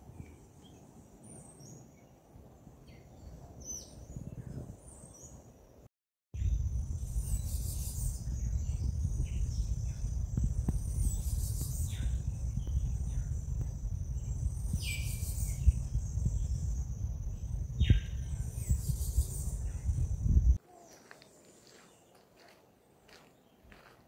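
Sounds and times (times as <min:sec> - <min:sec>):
low rumble: 0:06.4 - 0:07.5, 0:08.1 - 0:20.6
insects droning: 0:06.4 - 0:20.6
birds whistling: 0:14.2 - 0:16.8.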